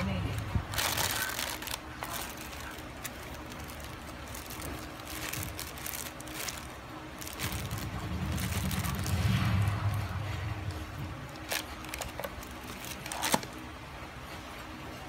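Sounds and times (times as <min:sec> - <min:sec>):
plastic packaging crinkling: 0:00.0 - 0:09.9, 0:11.2 - 0:13.7
low rumble: 0:03.2 - 0:13.1.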